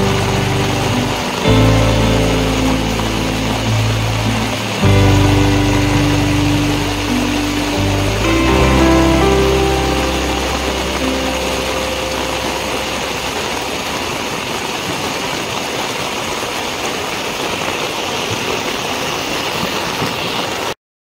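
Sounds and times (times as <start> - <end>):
low hum: 0.0 - 14.8
heavy rain on concrete: 0.0 - 20.8.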